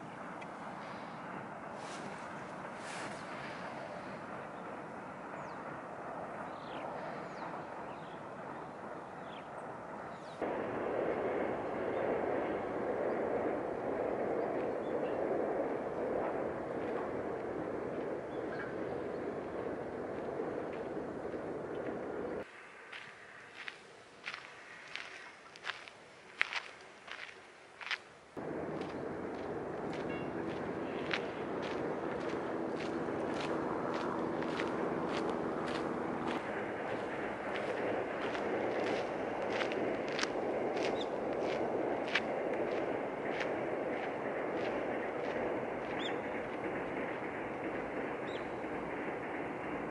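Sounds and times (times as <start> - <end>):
outdoor background rush: 0.0 - 49.9
footsteps on gravel: 22.9 - 46.6.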